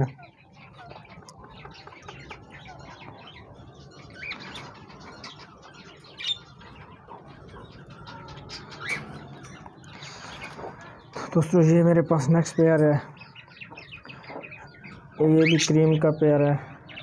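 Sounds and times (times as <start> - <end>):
birds chirping: 0.0 - 17.0
loud bird calls: 0.0 - 17.0.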